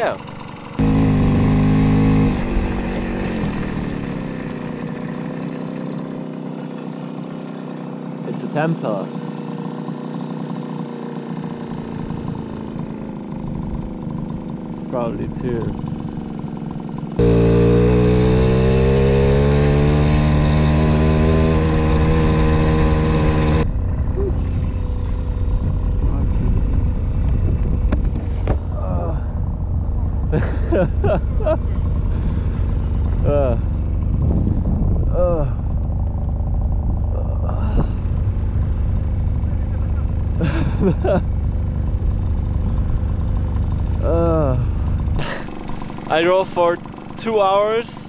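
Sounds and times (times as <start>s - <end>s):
moped engine running: 0.0s - 48.0s
wind rush on microphone: 23.7s - 28.7s, 33.5s - 35.7s.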